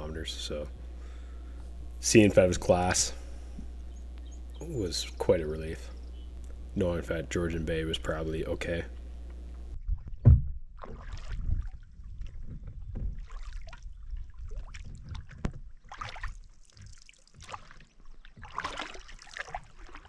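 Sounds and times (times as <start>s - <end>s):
low thump: 9.9s - 10.7s
canoe paddle splashing water: 10.7s - 20.0s.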